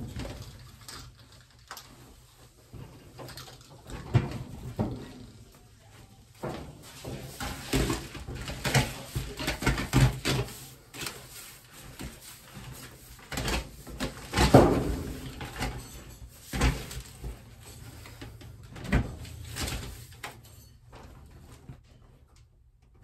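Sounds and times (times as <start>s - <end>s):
foil duct knocks and rustles: 6.5s - 18.2s.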